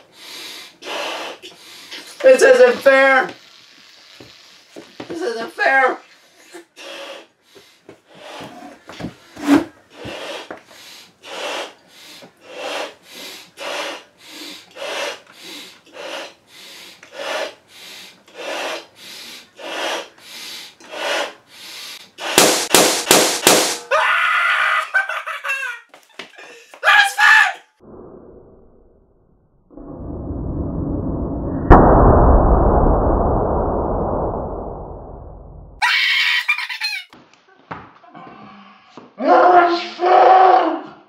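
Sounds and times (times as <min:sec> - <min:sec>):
person blowing up balloon: 0:00.4 - 0:02.2, 0:12.4 - 0:23.8
balloon bursting: 0:22.2 - 0:23.9
person laughing: 0:24.6 - 0:26.8, 0:35.8 - 0:37.1
person yelling: 0:26.8 - 0:27.7.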